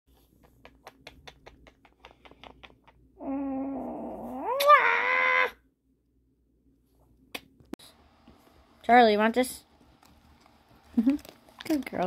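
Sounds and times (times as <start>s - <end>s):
kissing smacks: 0.4s - 3.1s.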